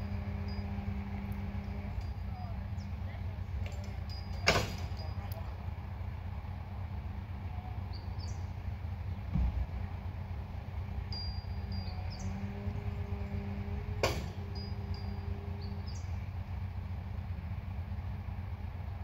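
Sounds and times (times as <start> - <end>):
hydraulic crane engine hum: 0.0 - 19.0
sharp metal clank: 3.8 - 5.1, 14.0 - 15.2
dull thud: 9.3 - 9.7.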